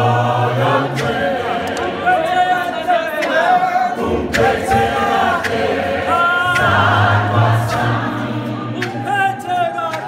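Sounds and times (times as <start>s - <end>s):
choir singing a cappella: 0.0s - 9.5s.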